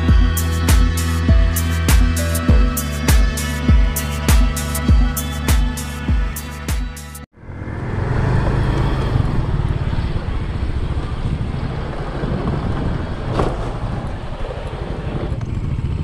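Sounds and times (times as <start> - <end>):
motorcycle engine rumble: 7.3 - 16.0
wind on microphone: 9.1 - 16.0.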